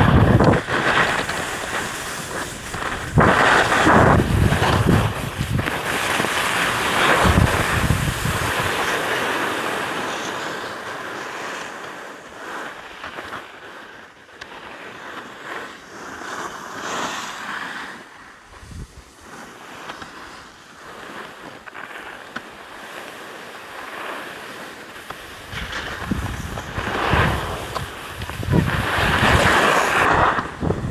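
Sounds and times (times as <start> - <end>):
wind rushing over microphone: 0.0 - 10.0, 18.4 - 19.2, 25.2 - 30.9
skis scraping on snow: 0.0 - 30.9.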